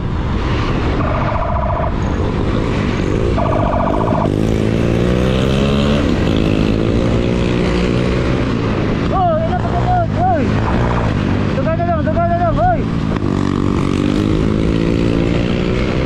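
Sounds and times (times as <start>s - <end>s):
motorcycle engine revving: 0.9s - 16.0s.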